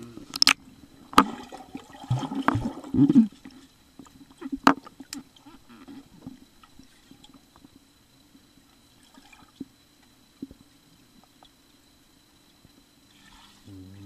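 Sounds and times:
steady low hum: 0.0s - 14.0s
underwater bubbling and pops: 0.3s - 3.4s.

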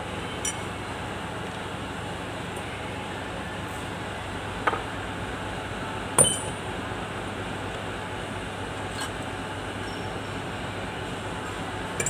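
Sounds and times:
steady background hum: 0.0s - 12.0s
metallic clink: 6.2s - 6.6s, 9.8s - 10.4s.

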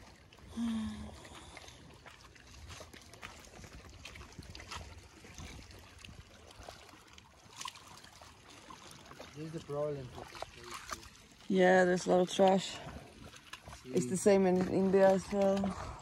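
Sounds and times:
waves lapping on rocks: 0.0s - 16.0s
wind rumbling on microphone: 2.6s - 6.8s, 14.4s - 16.0s.

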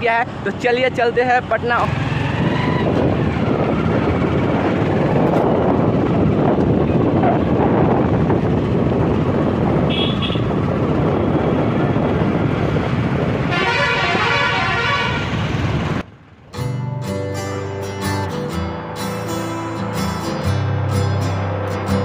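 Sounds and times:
road and wind noise: 0.0s - 22.0s
vehicle horn: 9.8s - 10.6s, 13.5s - 15.5s.

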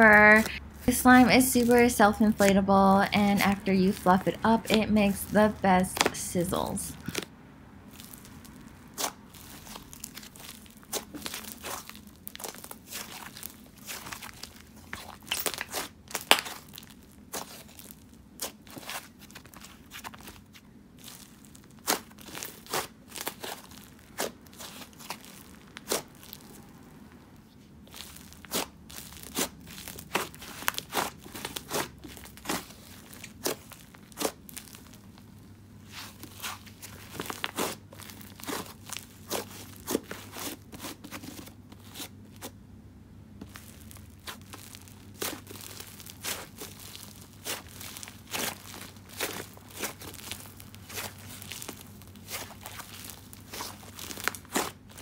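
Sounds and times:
slime crackling pops: 15.2s - 17.5s.

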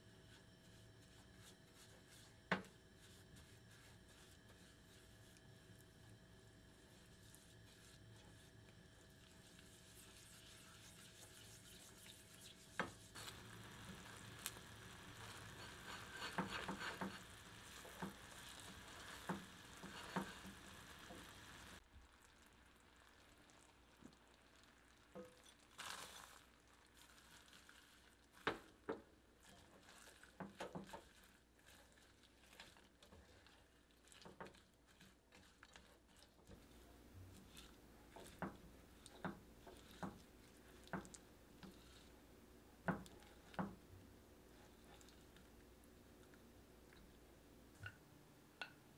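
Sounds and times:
caramel simmering hiss: 0.0s - 47.4s
spatula scraping and tapping pan: 11.8s - 21.8s, 28.4s - 31.1s, 34.1s - 42.2s, 42.8s - 43.9s.

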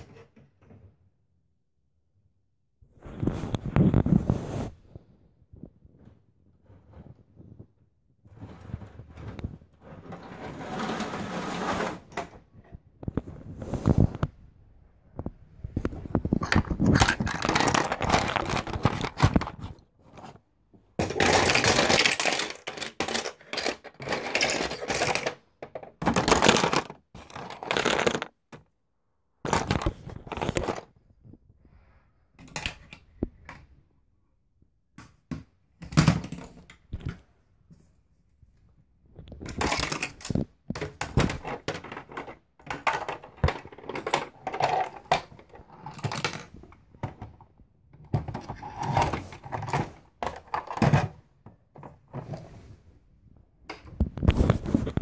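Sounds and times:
fabric rubbing over microphone: 3.0s - 5.1s.

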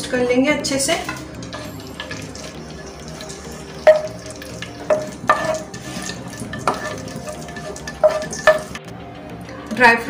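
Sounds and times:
nuts sizzling in hot oil: 0.8s - 8.9s
spatula knocking against pan: 2.0s - 8.8s.

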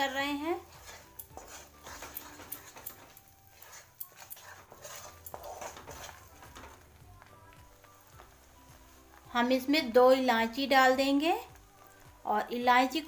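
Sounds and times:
wooden spatula scraping a pan: 0.0s - 7.4s.

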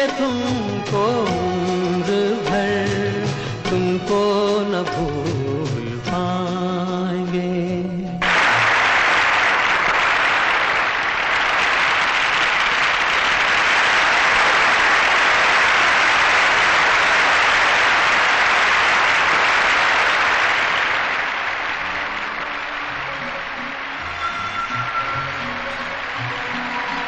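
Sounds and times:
music: 0.0s - 15.2s, 19.6s - 27.0s
audience applauding: 8.2s - 27.0s.

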